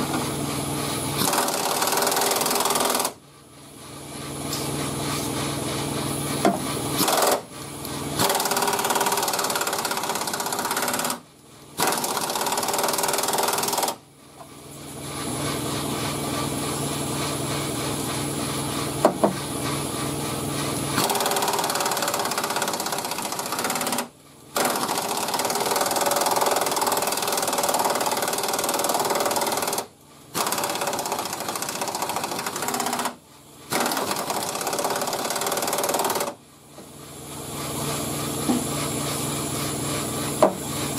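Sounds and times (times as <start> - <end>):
pneumatic air ratchet rattling: 0.0 - 3.2, 3.8 - 40.9.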